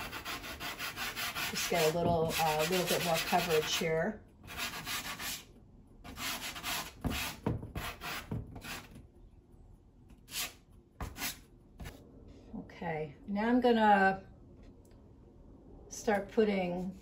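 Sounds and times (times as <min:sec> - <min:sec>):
pastel scratching on paper: 0:00.0 - 0:03.8.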